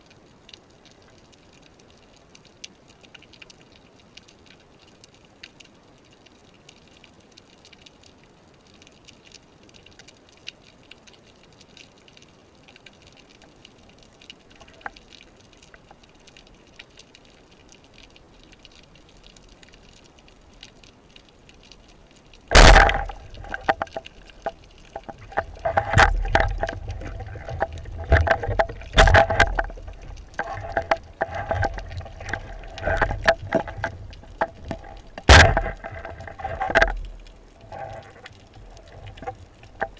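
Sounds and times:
faint underwater crackling: 0:00.0 - 0:39.9
speargun firing crack: 0:22.5 - 0:23.1, 0:35.3 - 0:35.8
knocks and low thuds: 0:22.5 - 0:23.8, 0:35.2 - 0:36.1.

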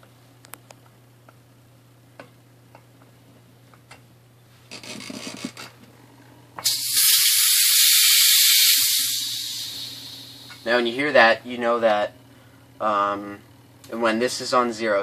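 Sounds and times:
compressed gas hissing: 0:06.6 - 0:10.7.

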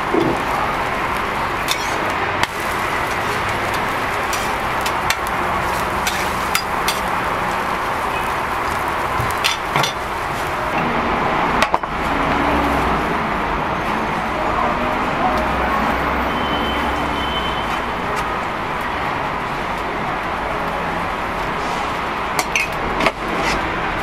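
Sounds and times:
patty sizzling on hot plate: 0:00.0 - 0:10.8
metal spatulas scraping griddle: 0:01.6 - 0:07.1, 0:22.6 - 0:23.7.

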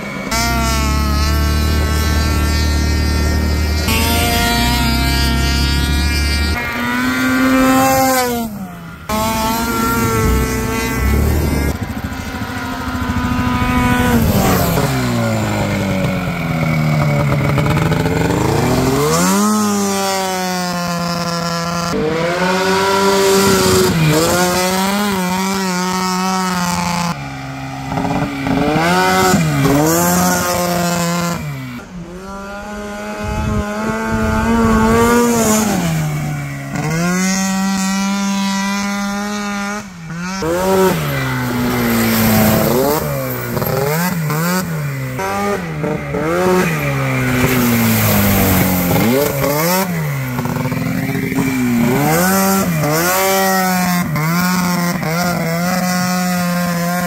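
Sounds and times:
snowmobile engine revving: 0:00.0 - 0:57.0.

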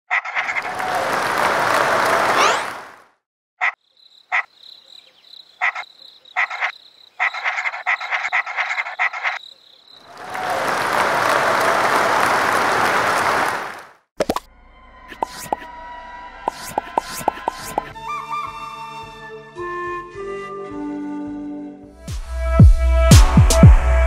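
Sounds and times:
frog croaking: 0:00.1 - 0:00.6, 0:03.6 - 0:10.1
high insect trill: 0:03.8 - 0:10.1.

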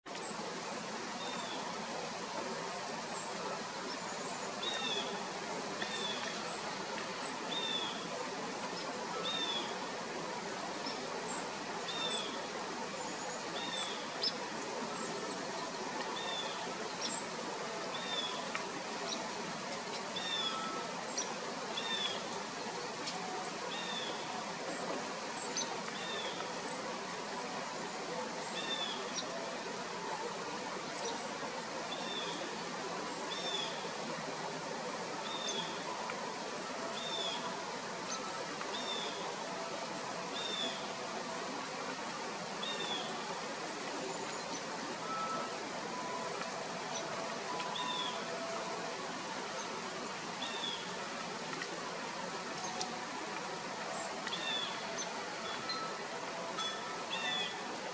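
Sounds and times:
steady outdoor hiss: 0:00.0 - 0:57.9
small birds calling: 0:54.0 - 0:55.8.

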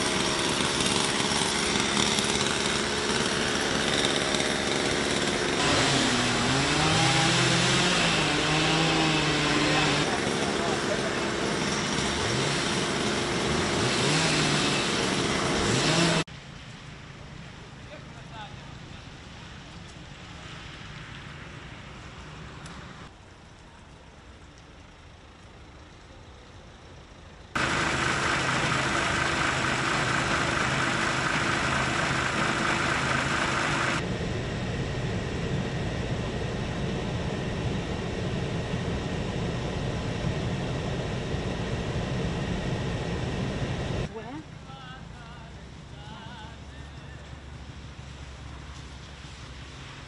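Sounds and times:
outdoor background noise: 0:00.0 - 0:50.0
diesel engine idling: 0:25.8 - 0:34.0.

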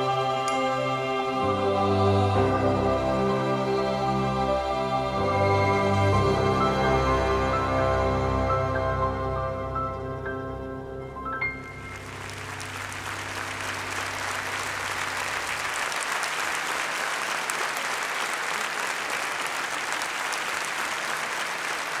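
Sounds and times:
piano and orchestra low notes: 0:00.0 - 0:22.0
audience applauding: 0:11.7 - 0:22.0.

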